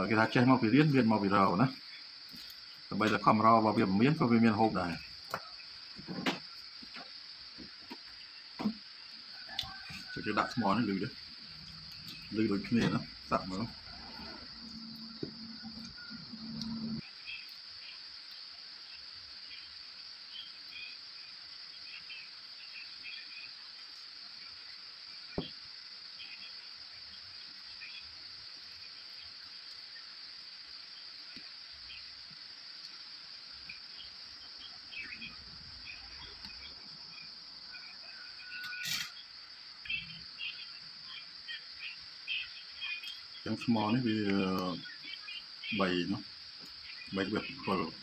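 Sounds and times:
faint chirps: 0.0s - 48.0s
high-pitched insect drone: 0.0s - 48.0s
low hum: 11.4s - 17.0s.

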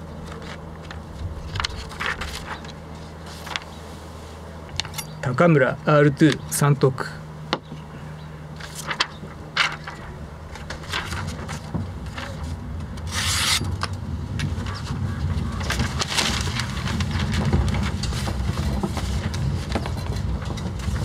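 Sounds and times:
paper being handled: 0.2s - 3.9s, 8.6s - 13.6s, 14.5s - 20.0s
low rumble: 9.6s - 21.0s.

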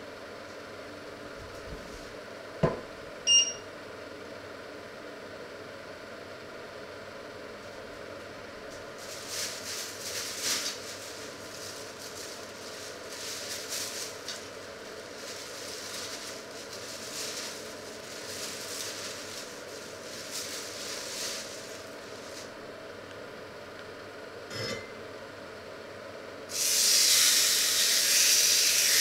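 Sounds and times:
plastic bag crinkling: 9.0s - 22.6s.

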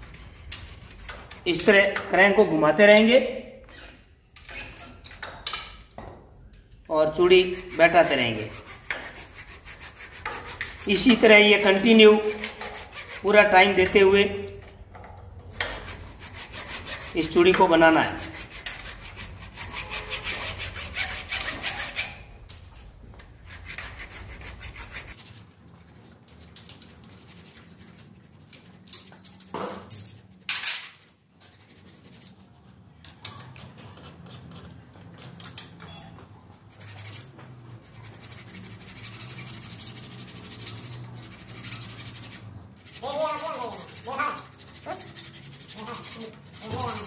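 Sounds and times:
hacksaw rasping on metal: 7.2s - 14.1s, 15.4s - 22.4s, 23.4s - 25.2s, 36.7s - 47.0s.

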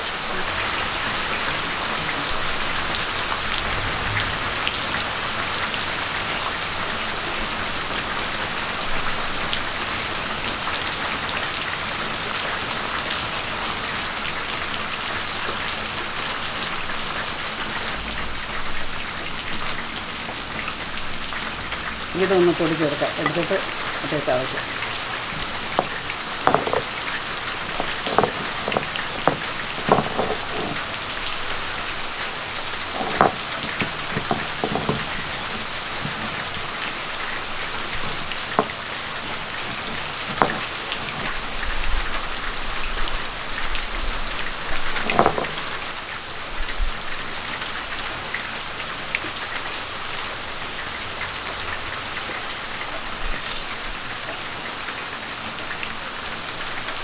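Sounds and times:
clay pot crunching on stone: 25.4s - 27.0s, 27.6s - 30.9s, 32.9s - 36.6s, 39.6s - 41.5s.

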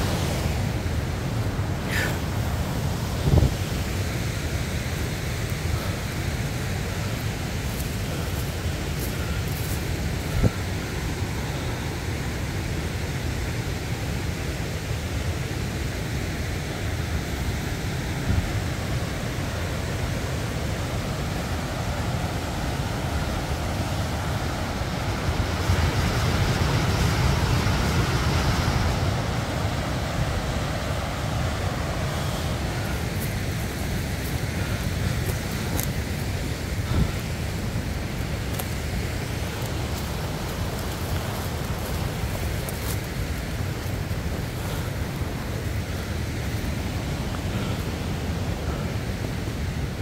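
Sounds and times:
wind buffeting microphone: 0.0s - 10.8s, 25.2s - 50.0s.

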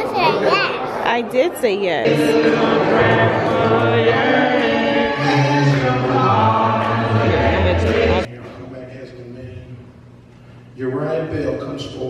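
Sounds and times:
choir and congregation singing: 2.0s - 8.3s.

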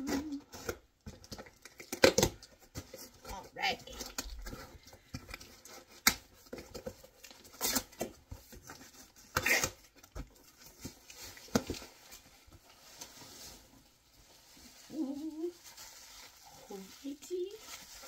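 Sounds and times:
cardboard tearing: 5.5s - 12.1s.

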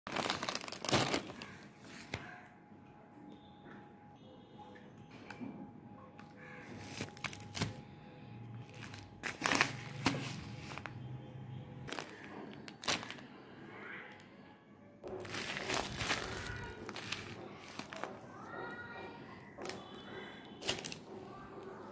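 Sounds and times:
plastic bags crinkling: 0.1s - 2.2s, 6.7s - 7.8s, 8.6s - 11.1s, 11.8s - 13.4s, 15.1s - 18.4s, 20.6s - 21.1s.

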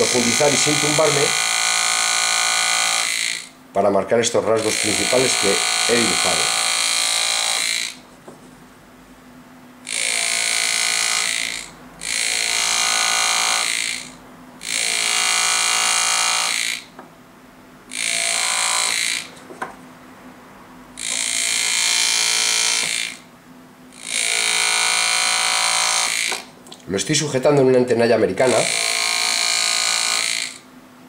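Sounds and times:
pneumatic engraving tool buzzing: 0.0s - 3.6s, 4.5s - 8.0s, 9.8s - 17.0s, 17.9s - 19.4s, 21.0s - 23.3s, 23.9s - 26.5s, 28.5s - 30.7s.

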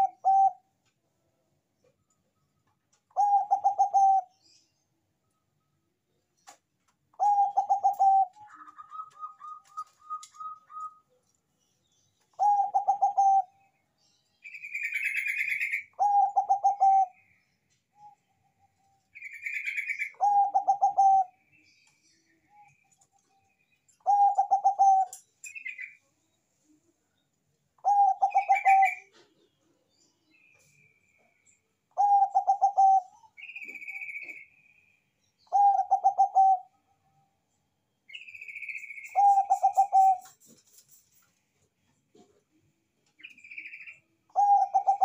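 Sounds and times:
dove cooing: 0.0s - 0.6s, 3.1s - 4.3s, 7.2s - 11.1s, 12.4s - 13.6s, 15.0s - 17.2s, 19.6s - 21.4s, 24.0s - 25.2s, 27.8s - 29.3s, 32.0s - 34.4s, 35.5s - 36.8s, 39.0s - 40.5s, 44.3s - 45.0s
faint high bird chirps: 0.0s - 0.8s, 1.8s - 42.4s, 43.0s - 45.0s
higher evenly spaced bird notes: 7.2s - 11.2s, 12.2s - 13.8s, 30.3s - 36.8s, 38.1s - 41.1s
harsh high bird calls: 38.2s - 40.4s.

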